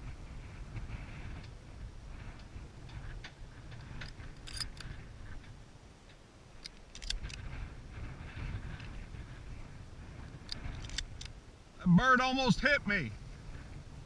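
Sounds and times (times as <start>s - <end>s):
low wind rumble on microphone: 0.0s - 14.0s.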